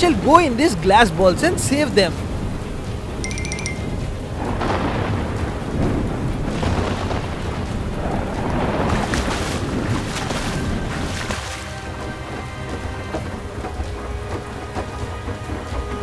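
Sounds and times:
heavy rain: 0.0s - 16.0s
thunder rumbling: 3.9s - 16.0s.

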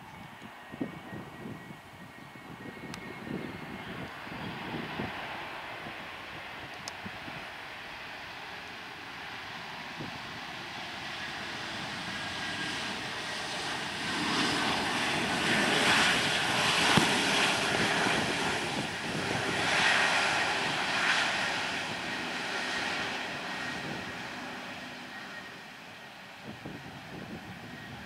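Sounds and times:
jet airliner roaring past: 0.0s - 28.0s.

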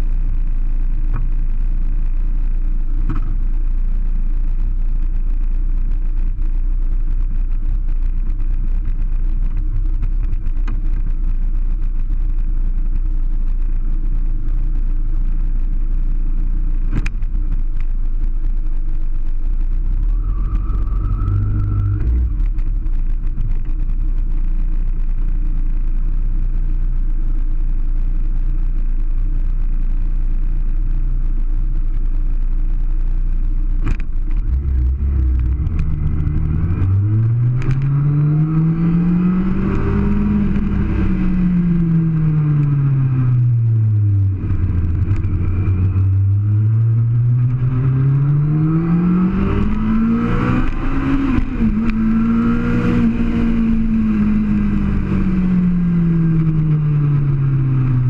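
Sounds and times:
motorcycle engine low rumble: 0.0s - 58.0s
short rising whine: 19.6s - 23.3s.

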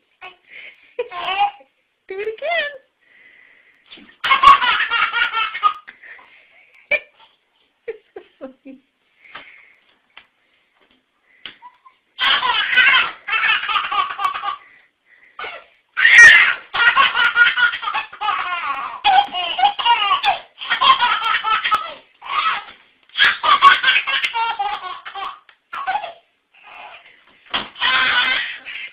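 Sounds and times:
baby belly laughing: 3.9s - 6.3s, 11.6s - 14.7s, 15.4s - 28.9s.

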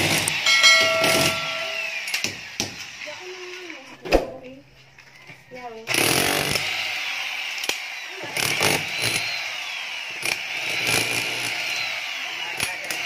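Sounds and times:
power drill boring into concrete: 0.0s - 1.3s, 5.9s - 13.0s.

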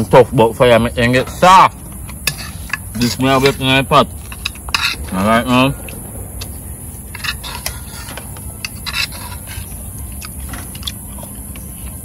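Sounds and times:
steady low rumble: 0.0s - 12.0s
food scraping in a bowl: 1.2s - 5.7s, 6.4s - 11.0s.

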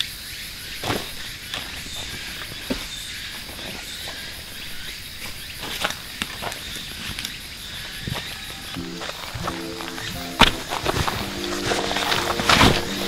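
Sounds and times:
insect chorus: 0.0s - 13.0s
footsteps on dry leaves: 8.0s - 13.0s.

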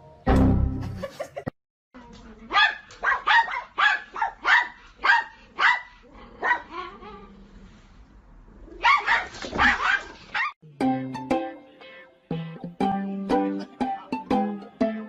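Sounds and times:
dog barking: 2.5s - 6.9s, 8.8s - 10.6s.

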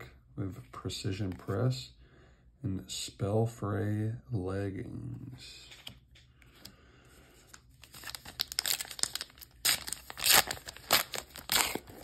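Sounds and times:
foil wrapper crinkling and tearing: 7.8s - 12.0s.

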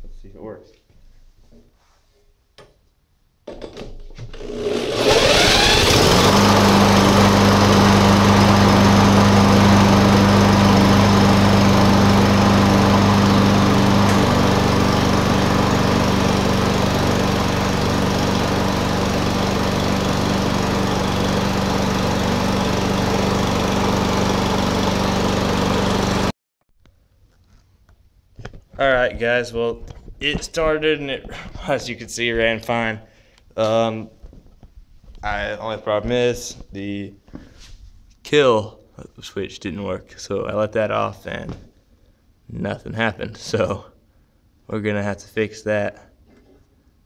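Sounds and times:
lawn mower engine starting and running: 4.2s - 26.3s.

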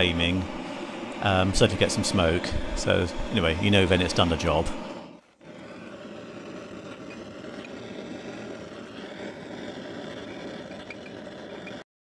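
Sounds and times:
gas torch burning: 0.0s - 11.9s.

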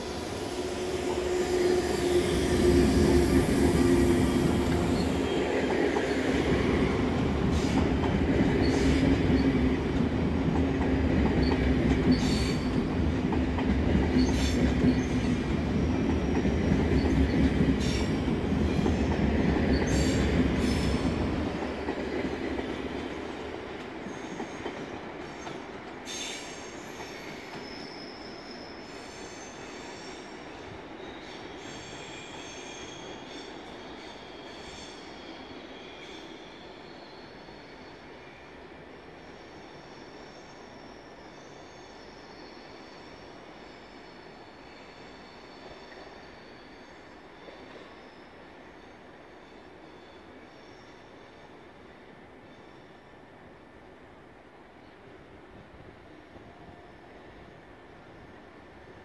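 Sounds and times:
train rumbling: 0.0s - 35.8s.

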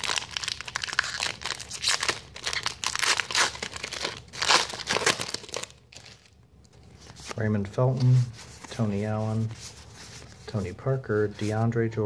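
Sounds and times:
wrapper being torn and crinkled: 0.0s - 6.4s.

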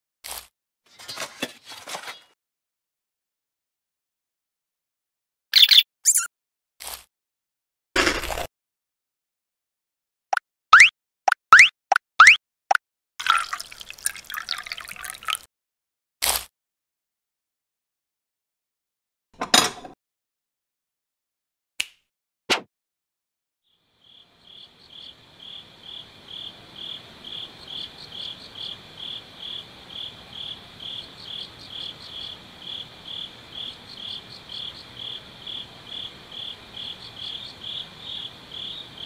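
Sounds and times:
crickets chirping: 23.8s - 39.0s.

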